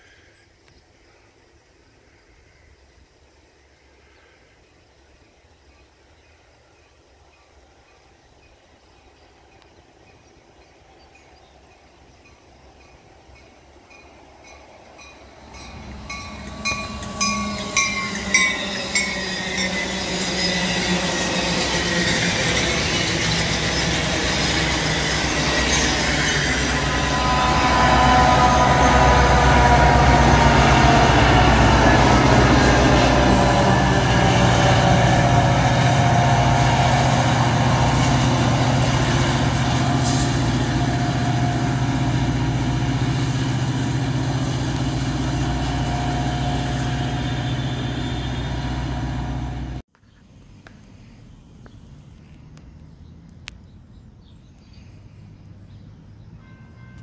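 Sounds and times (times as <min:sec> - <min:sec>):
diesel locomotive rumble and drone: 0:06.9 - 0:49.9
train wheels clicking over rail joints: 0:12.2 - 0:27.1.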